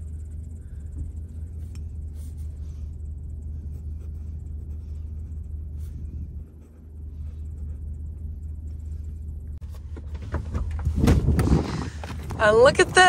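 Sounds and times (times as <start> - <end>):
low rumble: 0.0 - 13.0
pen scratching on paper: 3.6 - 8.3.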